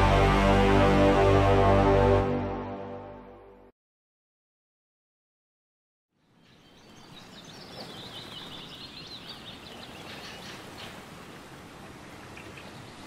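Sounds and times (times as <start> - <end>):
birds chirping rapidly: 6.3 - 11.0.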